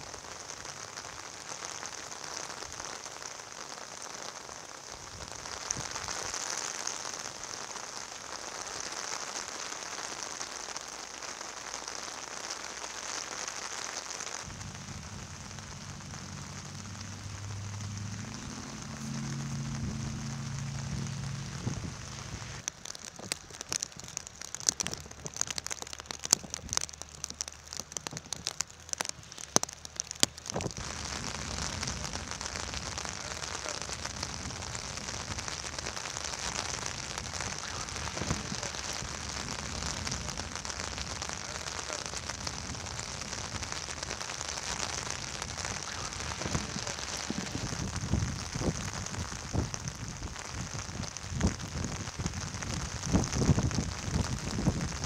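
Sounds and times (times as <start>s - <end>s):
steady rain: 0.0s - 55.0s
raindrop taps: 14.4s - 55.0s.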